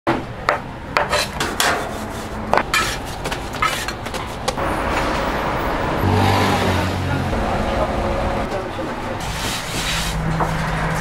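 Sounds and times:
metal spatula scraping griddle: 0:01.1 - 0:04.4.

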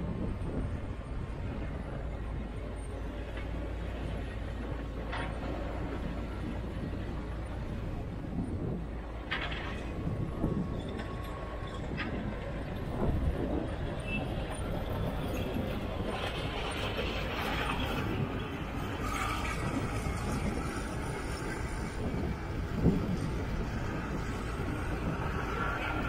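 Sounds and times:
diesel engines rumbling: 0:00.0 - 0:26.0.

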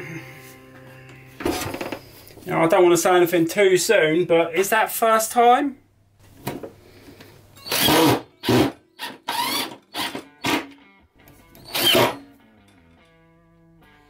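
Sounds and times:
background music: 0:00.0 - 0:03.3, 0:07.4 - 0:14.0
cordless drill bursts: 0:07.6 - 0:10.7, 0:11.6 - 0:12.2.

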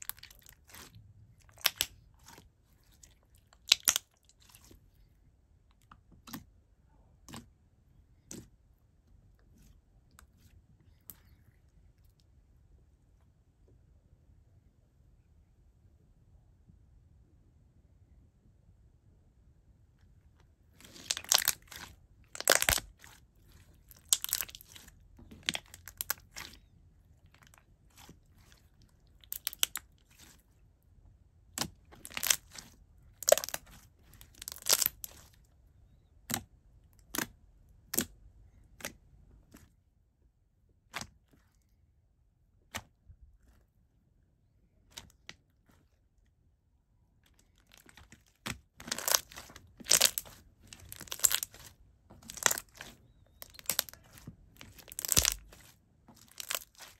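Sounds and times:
slime squeezed popping: 0:33.2 - 0:35.3, 0:48.8 - 0:56.9.

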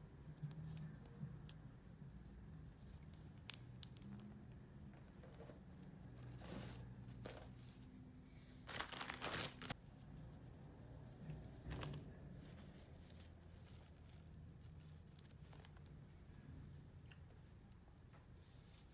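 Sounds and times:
plastic crinkling and rustling: 0:08.6 - 0:09.8, 0:11.5 - 0:16.1.

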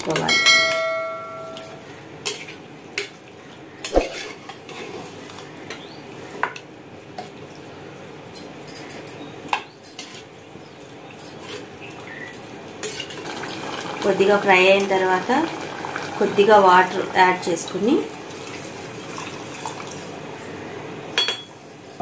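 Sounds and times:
faint sizzle: 0:10.1 - 0:21.1.

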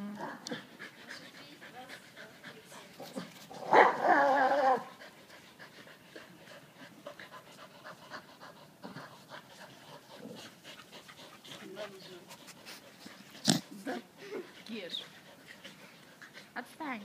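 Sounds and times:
dog panting: 0:00.4 - 0:03.7, 0:04.8 - 0:17.0
dog whining cry: 0:03.6 - 0:04.9.

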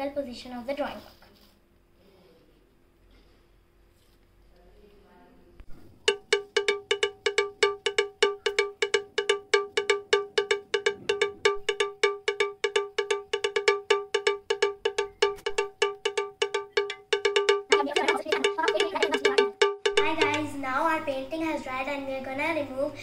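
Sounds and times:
fast bell-like strikes: 0:06.0 - 0:21.1.

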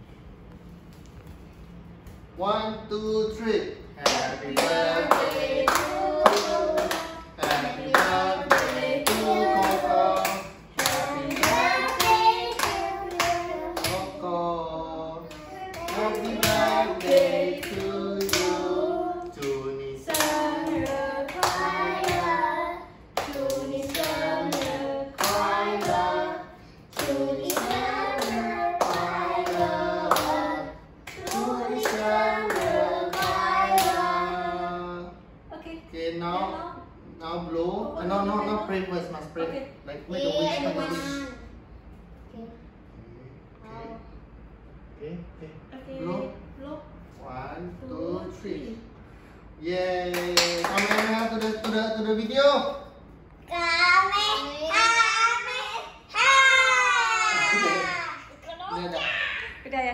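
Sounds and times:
people clapping: 0:04.0 - 0:14.1, 0:19.4 - 0:22.3, 0:23.2 - 0:26.0, 0:26.9 - 0:30.4, 0:31.1 - 0:34.1, 0:50.1 - 0:51.8
people singing together: 0:04.0 - 0:35.2.

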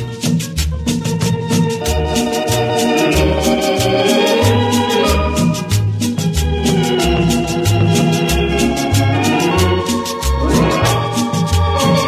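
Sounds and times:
fast high percussion beat: 0:00.0 - 0:12.0
electronic organ chords: 0:01.0 - 0:12.0
bass bouncing: 0:05.7 - 0:11.7.

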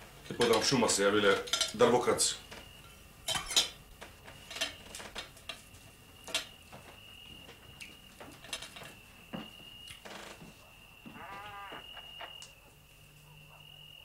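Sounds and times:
dishes and cutlery clinking: 0:02.8 - 0:03.8.

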